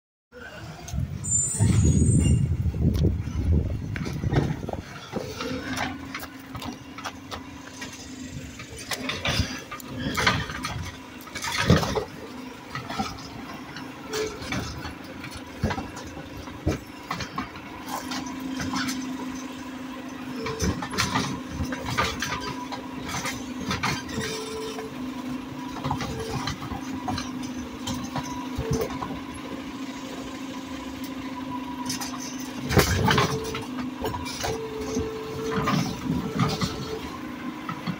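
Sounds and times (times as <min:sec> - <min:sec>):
truck engine and hydraulic drone: 0:00.3 - 0:37.9
plastic carts clattering: 0:08.7 - 0:12.2.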